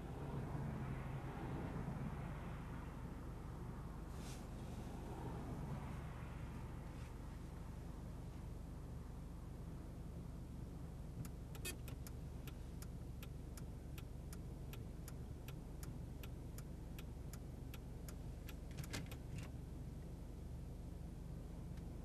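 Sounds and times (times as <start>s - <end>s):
regular mechanical ticking: 11.2s - 19.6s.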